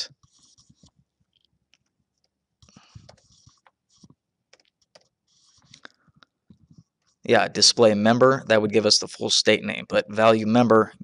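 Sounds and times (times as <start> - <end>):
computer keyboard typing: 2.6 - 5.7.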